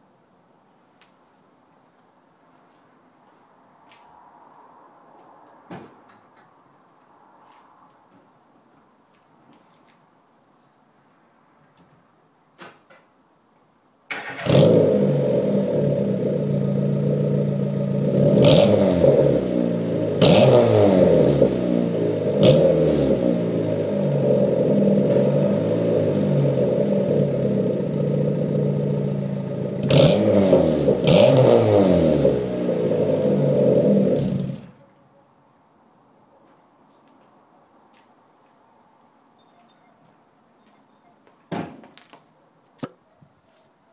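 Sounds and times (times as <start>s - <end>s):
car engine starting and revving: 14.1s - 34.8s.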